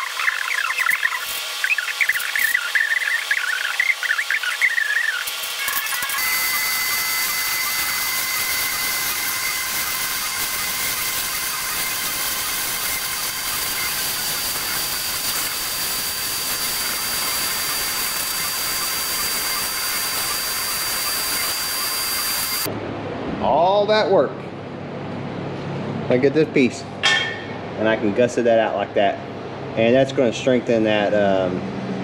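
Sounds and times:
plasma cutter hissing: 0.0s - 22.7s.

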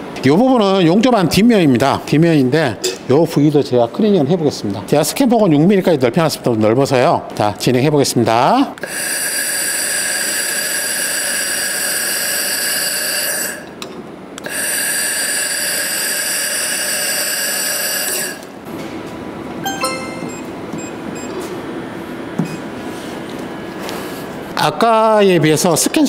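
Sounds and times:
brief tone: 19.6s - 21.4s.

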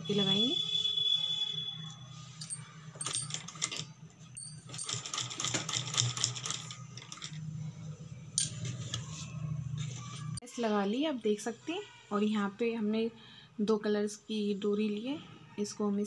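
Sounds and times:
sewing machine rapid ticking: 4.7s - 7.3s.

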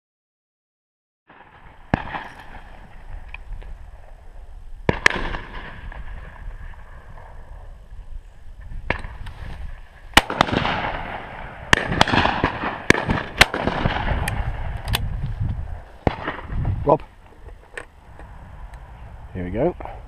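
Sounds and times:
shotgun shots: 1.3s - 2.9s, 4.9s - 6.4s, 10.1s - 14.8s, 16.0s - 16.7s.

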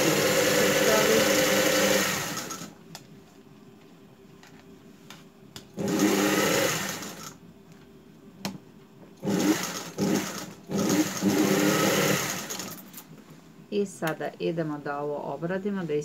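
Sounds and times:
industrial sewing machine stitching: 0.0s - 2.7s, 5.8s - 7.4s, 9.2s - 12.8s.

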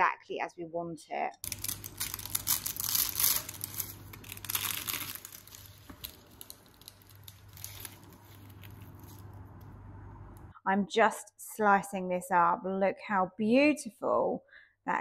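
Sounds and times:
filo pastry crackling and crunching: 1.4s - 9.8s.

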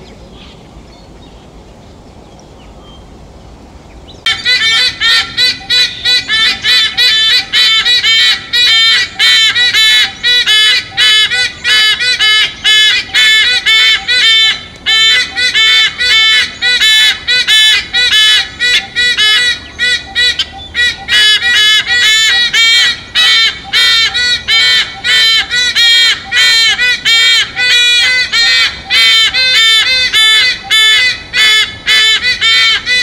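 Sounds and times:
sea eagle honking calls: 4.3s - 33.0s.

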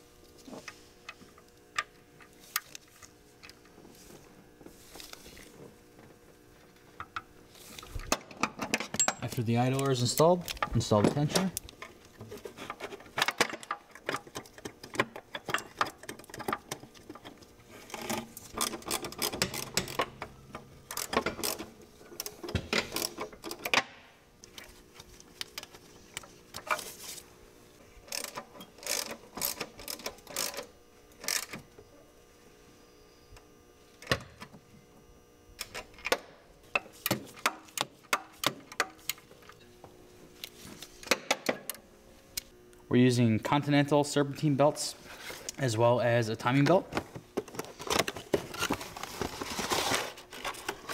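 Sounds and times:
metal parts clinking: 8.6s - 11.5s.

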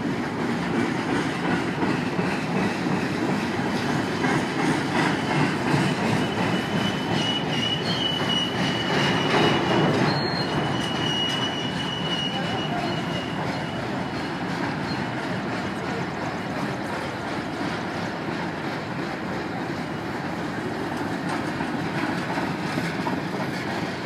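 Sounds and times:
train wheels rumbling on rail: 0.0s - 24.0s
high wheel squeal: 4.8s - 16.7s.

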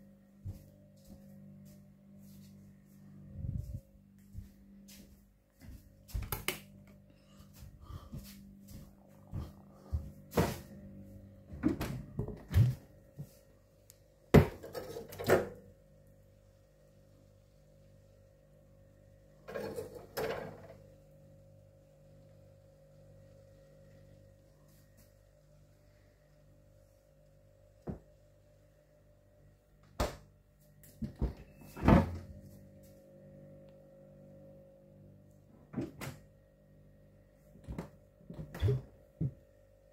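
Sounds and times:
fridge compressor humming: 5.9s - 39.9s
fridge doors knocking and clunking: 11.5s - 12.8s
fridge door knocks and thunks: 11.6s - 12.8s, 14.3s - 15.6s.

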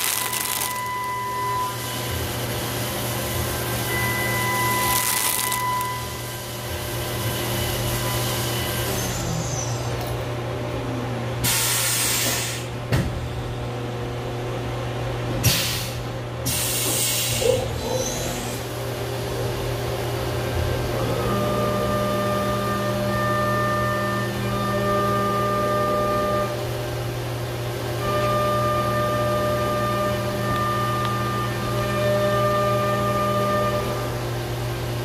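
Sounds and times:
milling machine humming: 0.0s - 11.5s, 18.5s - 35.0s.

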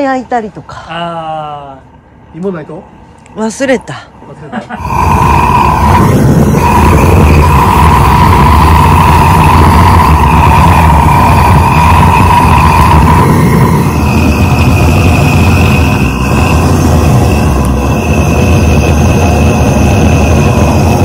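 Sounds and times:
weed burner roaring: 4.6s - 21.0s
whistling tone: 4.9s - 21.0s.

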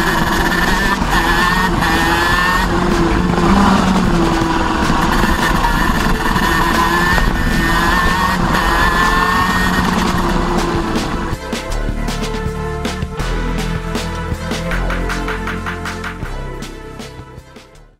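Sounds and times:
wind rush on microphone: 0.0s - 11.4s
kart engine revving: 0.0s - 16.3s.

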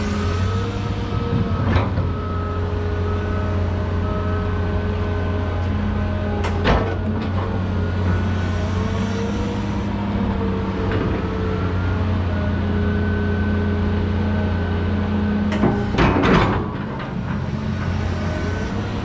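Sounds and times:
excavator engine drone: 0.0s - 19.0s
faint hydraulic whine: 7.5s - 10.1s.

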